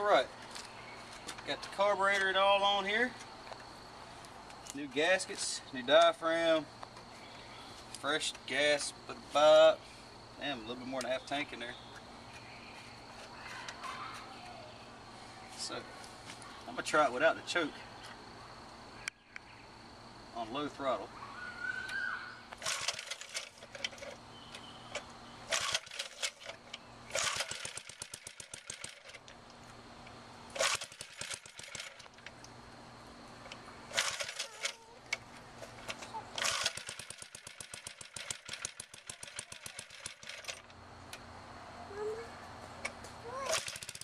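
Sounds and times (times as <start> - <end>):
starter rope pulls: 22.5 - 24.2, 24.9 - 29.3, 30.5 - 32.4, 33.4 - 40.7, 43.4 - 44.0
small engine popping: 22.5 - 29.7, 30.5 - 32.6, 33.4 - 40.8, 42.8 - 44.0.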